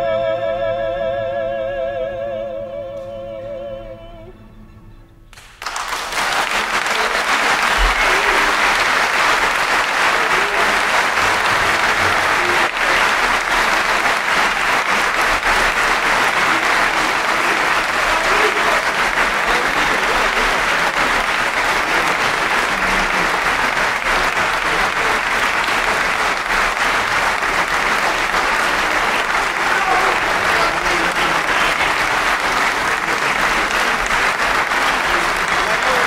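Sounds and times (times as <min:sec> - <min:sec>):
audience applauding: 0:05.3 - 0:36.0.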